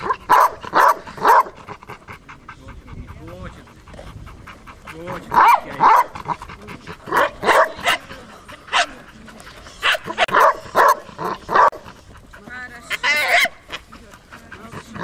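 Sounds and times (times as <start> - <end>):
dog barking: 0.0 - 1.6, 5.3 - 6.2, 7.1 - 8.1, 8.7 - 8.9, 9.8 - 11.8
dog yelping: 12.9 - 13.6.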